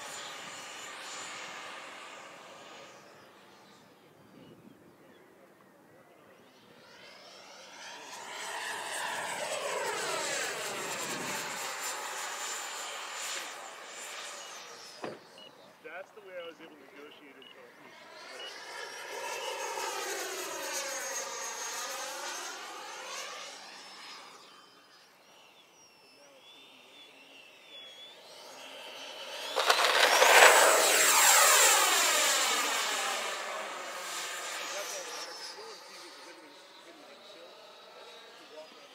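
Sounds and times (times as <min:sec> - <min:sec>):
rc jet passing by: 0:00.0 - 0:38.9.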